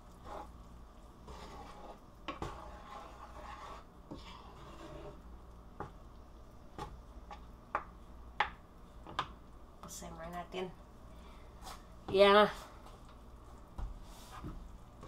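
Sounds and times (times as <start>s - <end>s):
spatula stirring food in pan: 0.0s - 9.5s.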